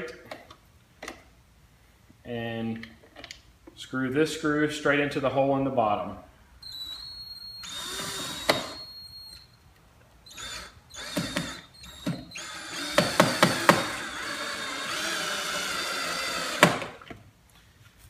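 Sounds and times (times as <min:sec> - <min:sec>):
power drill driving a screw: 0:06.6 - 0:09.4, 0:10.3 - 0:17.0.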